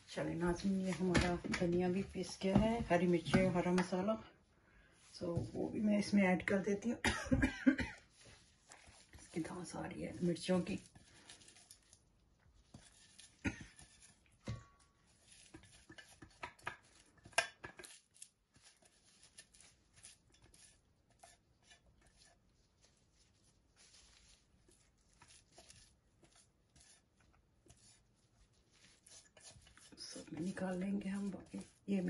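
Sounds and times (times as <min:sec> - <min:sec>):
spatula scraping metal bowl: 0:00.0 - 0:04.1, 0:12.6 - 0:32.0.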